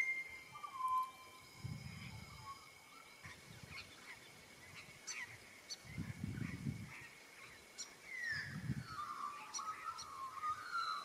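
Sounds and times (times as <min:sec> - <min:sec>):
bird whistled note: 0:00.0 - 0:01.4
bird chirps and calls: 0:07.0 - 0:11.0.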